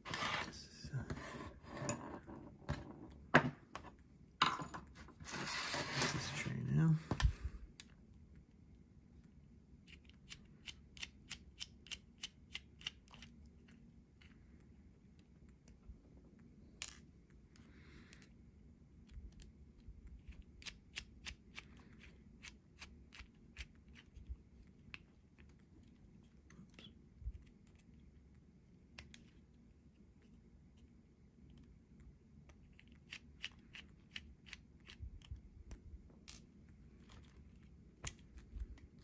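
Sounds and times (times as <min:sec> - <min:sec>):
brief scrape: 0:05.2 - 0:06.3.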